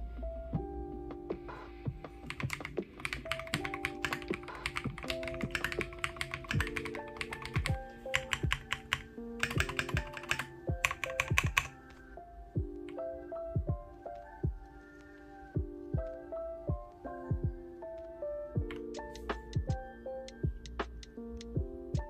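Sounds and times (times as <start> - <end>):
mechanical keyboard typing: 2.2 - 11.8.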